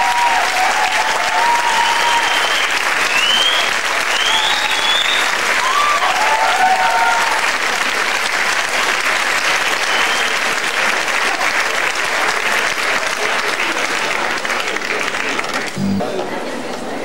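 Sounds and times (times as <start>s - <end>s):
people whooping: 0.0s - 7.4s
audience applauding: 0.0s - 16.3s.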